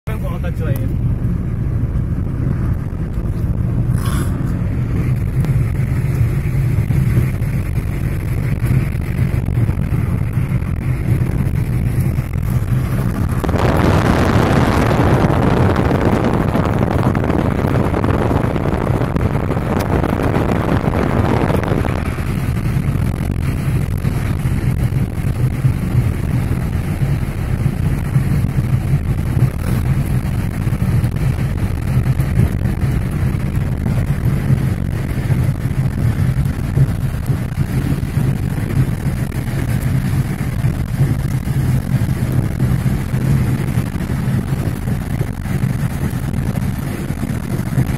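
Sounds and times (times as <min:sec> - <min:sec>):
car engine and tyre rumble: 0:00.0 - 0:47.9.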